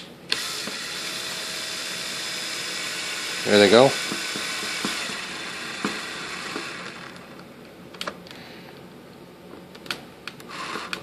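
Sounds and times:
drill bit clicks and taps: 0:04.0 - 0:05.2, 0:05.8 - 0:06.8.

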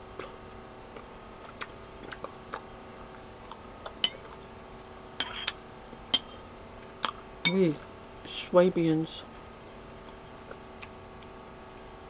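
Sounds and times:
metal spoon clinking on bowl: 0:06.1 - 0:06.4.

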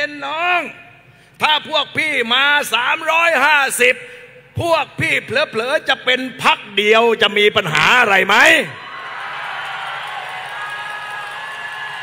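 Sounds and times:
crowd cheering and shouting: 0:08.8 - 0:12.0.

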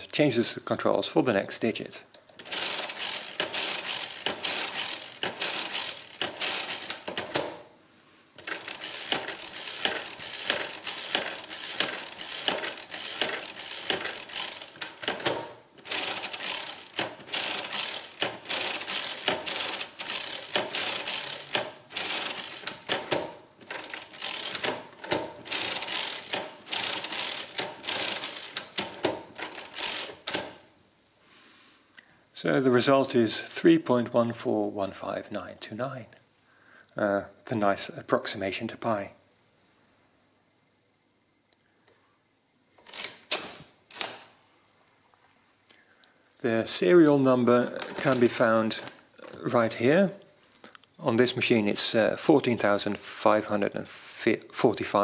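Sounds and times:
mechanical calculator clattering: 0:02.4 - 0:07.6, 0:08.4 - 0:30.5, 0:47.7 - 0:49.4.

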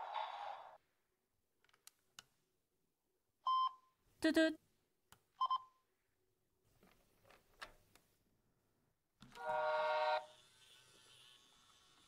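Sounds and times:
toy train horn: 0:09.3 - 0:11.7.

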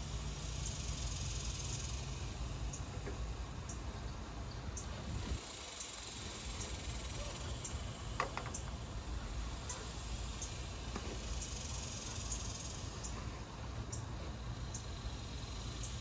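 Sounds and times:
faint insect chirp: 0:00.0 - 0:16.0
low steady rumble: 0:00.0 - 0:16.0.

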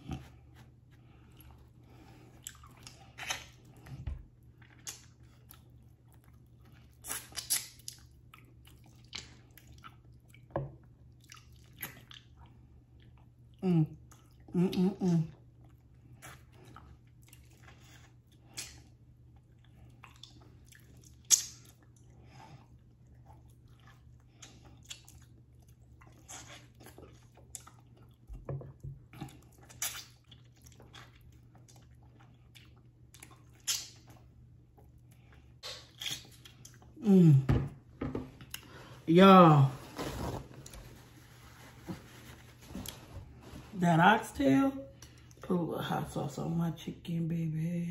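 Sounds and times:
wet chewing and lip-smacking: 0:00.0 - 0:14.5, 0:15.3 - 0:37.0
short hummed vocal sound: 0:13.6 - 0:15.4, 0:37.0 - 0:37.7.

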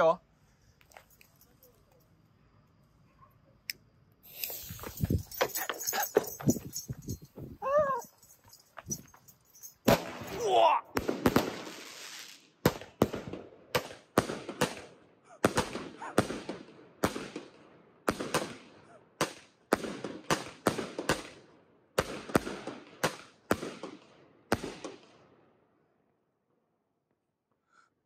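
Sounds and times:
fireworks crackle: 0:04.2 - 0:07.3, 0:09.8 - 0:17.5
fireworks bangs: 0:09.8 - 0:21.4.

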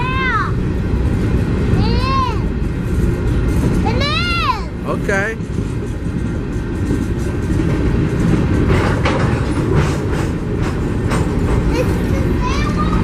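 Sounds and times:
sharp clacks of train wheels: 0:00.0 - 0:13.0
train wheels rumbling on rails: 0:00.0 - 0:13.0.

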